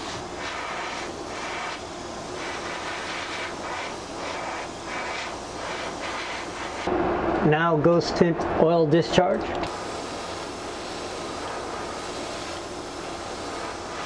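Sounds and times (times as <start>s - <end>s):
airbrush spraying air hiss: 0.0s - 6.9s, 9.7s - 14.0s.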